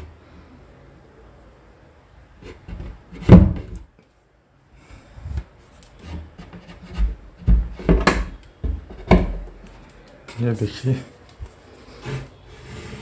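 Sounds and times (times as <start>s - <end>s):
scrapes on wood: 6.0s - 8.0s, 11.9s - 13.0s
knocks on wooden cabinet: 7.0s - 9.4s.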